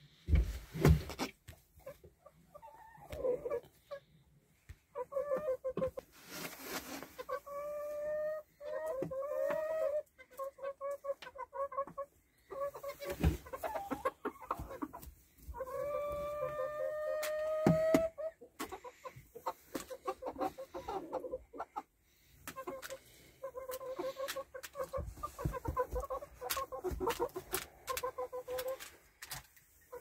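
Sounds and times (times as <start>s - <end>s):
hen clucking: 1.8s - 4.1s, 4.9s - 6.0s, 7.1s - 30.0s
short rustle: 6.1s - 7.3s
hen long drawn-out calls: 15.6s - 18.3s.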